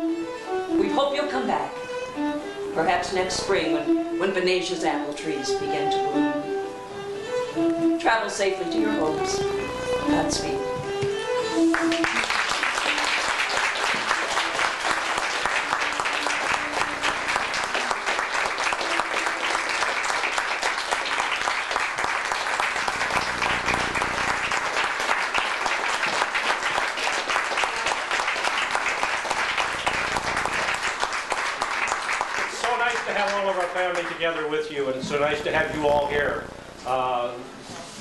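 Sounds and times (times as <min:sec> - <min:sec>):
audience clapping: 0:11.6 - 0:36.3.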